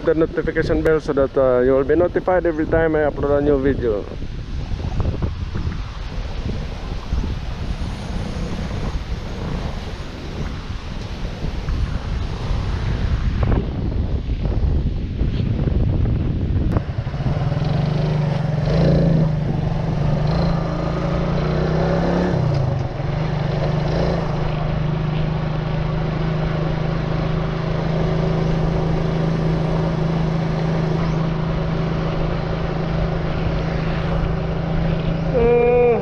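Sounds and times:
motor scooter engine running: 0:16.8 - 0:36.0.

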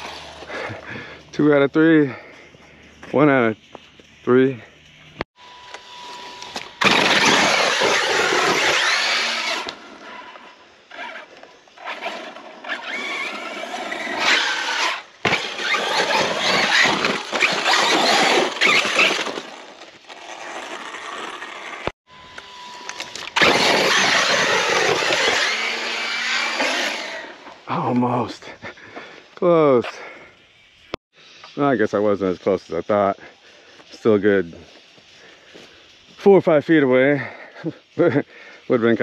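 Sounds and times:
rc truck motor whining: 0:00.0 - 0:00.8, 0:04.8 - 0:27.6
tyres on gravel: 0:00.0 - 0:05.2, 0:06.0 - 0:22.0, 0:22.7 - 0:30.4.

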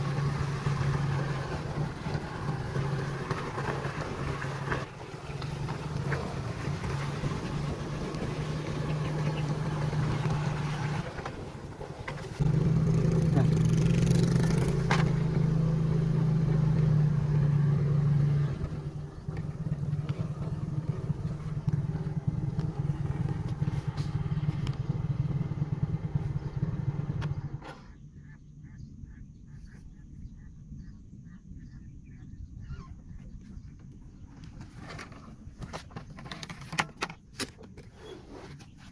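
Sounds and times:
small motorcycle engine running: 0:00.0 - 0:28.0
rapid chirping calls: 0:08.6 - 0:09.8, 0:27.3 - 0:33.8.

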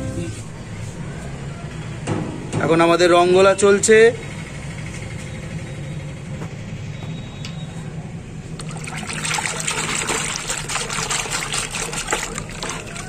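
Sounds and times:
hand swishing water in bucket: 0:08.6 - 0:13.0.

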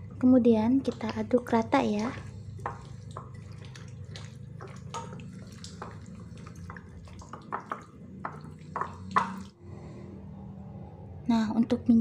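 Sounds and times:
hand kneading wet food: 0:00.0 - 0:09.6
low hum: 0:00.0 - 0:12.0.

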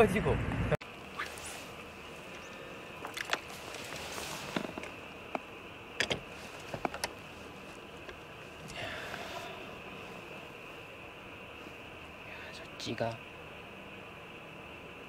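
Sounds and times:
night insects chirring: 0:00.8 - 0:15.0.

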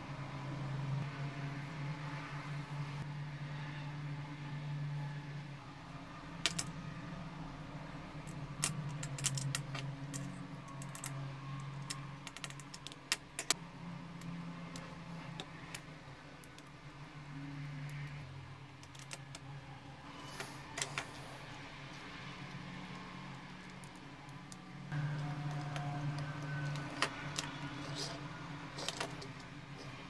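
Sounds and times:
small parts clicking and ticking: 0:08.2 - 0:13.6, 0:18.8 - 0:19.5, 0:21.9 - 0:30.0.

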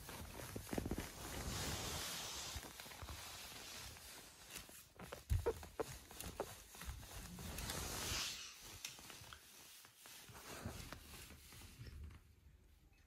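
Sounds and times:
rustling of bedding: 0:00.0 - 0:12.8.

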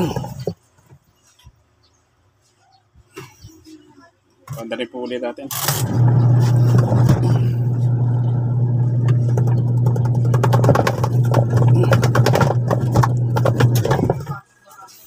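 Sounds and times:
rattling and scraping clicks: 0:05.5 - 0:14.4
washing machine motor humming: 0:05.5 - 0:14.5.

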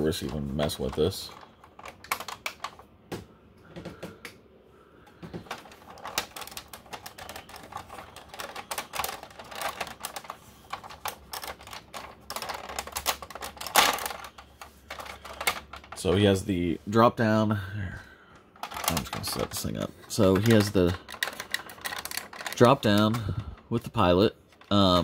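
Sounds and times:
plastic toy clicks and rattles: 0:00.0 - 0:02.8, 0:05.4 - 0:16.0, 0:18.6 - 0:25.0.

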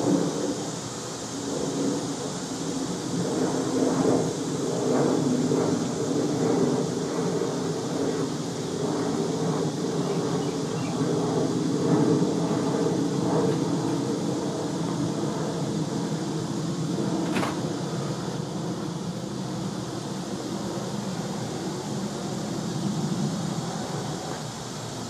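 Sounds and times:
faint hiss: 0:00.0 - 0:04.6
low rumbling background noise: 0:00.0 - 0:25.0.

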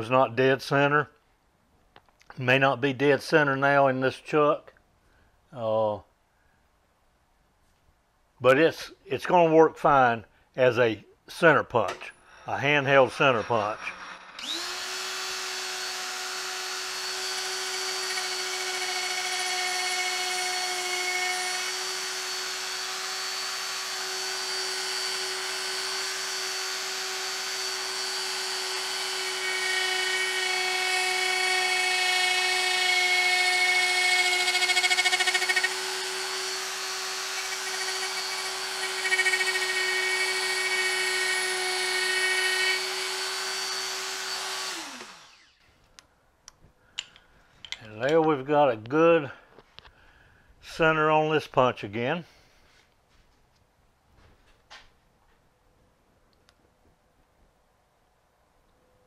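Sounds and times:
die grinder whining: 0:12.1 - 0:45.6.

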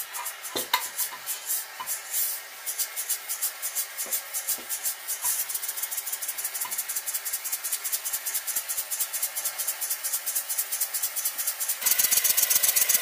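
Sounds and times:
steam hiss: 0:00.0 - 0:13.0
model steam engine puffing: 0:11.4 - 0:13.0.

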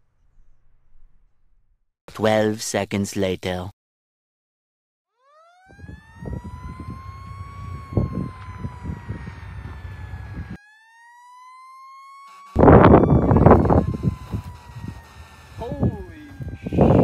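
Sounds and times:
fire truck siren wailing: 0:05.1 - 0:17.0
wind rumbling on microphone: 0:05.7 - 0:10.6, 0:12.6 - 0:17.0
loud burst of noise: 0:12.3 - 0:17.0.

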